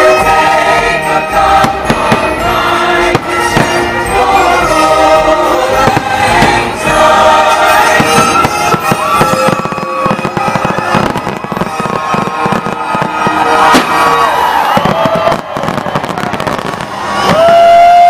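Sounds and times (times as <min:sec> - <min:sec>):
loud music with held notes: 0:00.0 - 0:18.0
fireworks bursting and crackling: 0:01.0 - 0:18.0.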